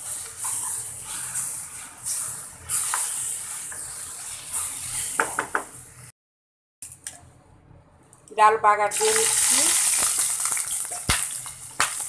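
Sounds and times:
food sizzling in a frying pan: 0.0 - 6.1, 8.9 - 12.0.

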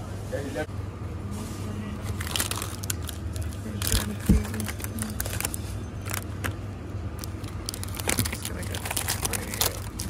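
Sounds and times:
low hum of supermarket: 0.0 - 10.0
hand rummaging plastic-wrapped bars: 2.1 - 6.6, 7.2 - 10.0.

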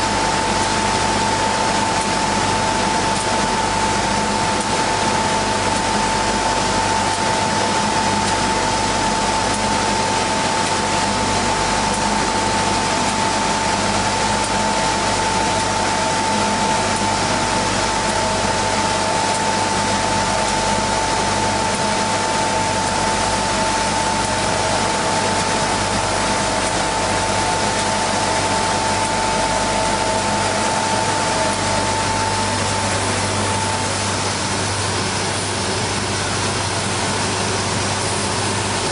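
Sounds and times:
high machine whine: 0.0 - 38.9
sanding machine running: 23.8 - 38.8.

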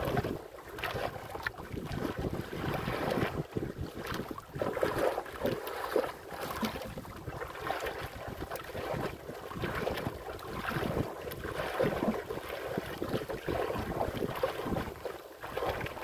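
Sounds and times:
waves splashing against boat hull: 0.0 - 16.0
wind buffeting microphone: 1.0 - 5.1, 8.0 - 12.2.

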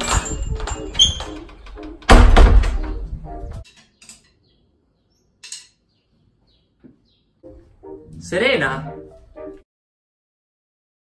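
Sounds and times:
door thudding open: 0.0 - 3.2.

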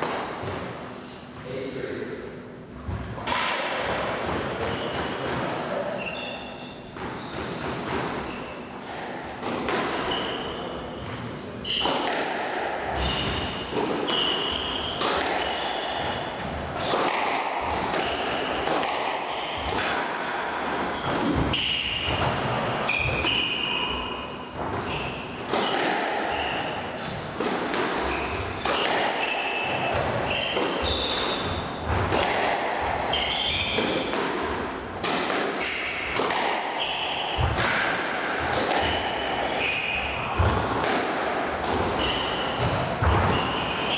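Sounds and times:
squash ball hit by rackets: 0.0 - 0.7, 2.9 - 6.0, 6.9 - 43.9
shoes squeaking on wooden floor: 30.2 - 31.5.

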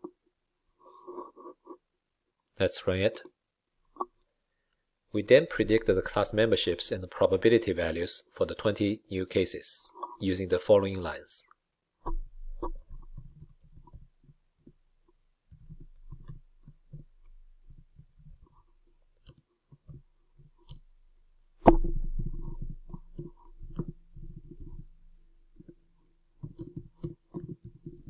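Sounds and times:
keyboard typing: 26.4 - 28.0.

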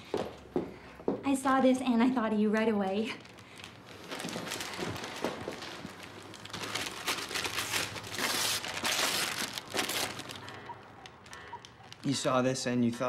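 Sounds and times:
wrapping paper tearing and crumpling: 2.9 - 12.9.

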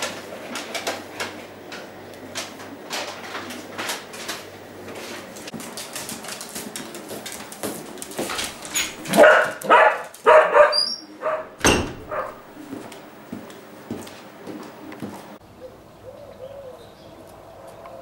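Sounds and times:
dog barking: 9.1 - 12.4
loud thump: 11.6 - 12.4.

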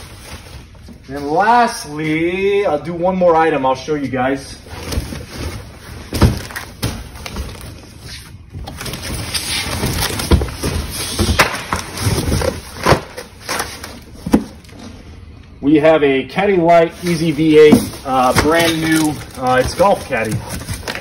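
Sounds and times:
cardboard scraping and rustling: 4.6 - 14.9, 16.9 - 21.0.

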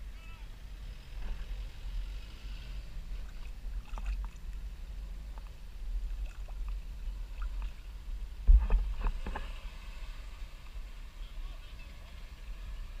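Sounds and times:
water lapping and splashing: 1.2 - 11.2.

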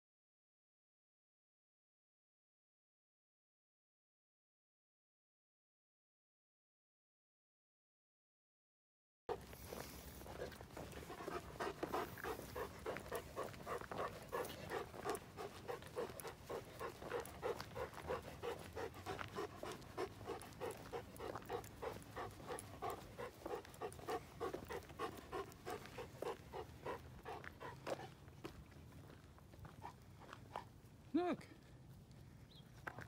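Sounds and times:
dog panting: 9.3 - 30.8.

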